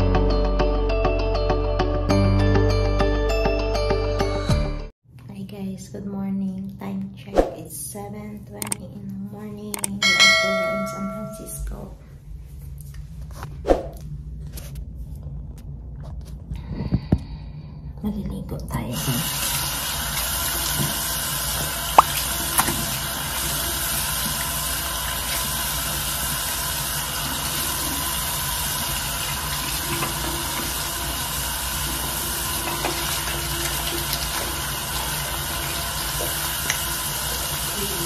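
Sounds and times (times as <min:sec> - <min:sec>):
sharp clicks: 0:09.8 - 0:10.0
shower water running: 0:18.9 - 0:38.0.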